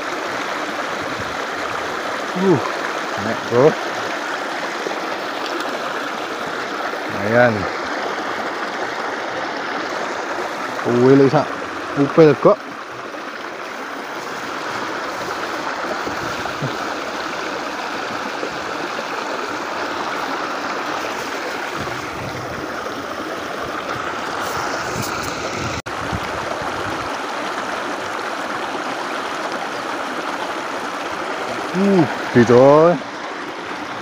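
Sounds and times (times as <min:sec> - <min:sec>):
stream water rushing over rocks: 0:00.0 - 0:34.0.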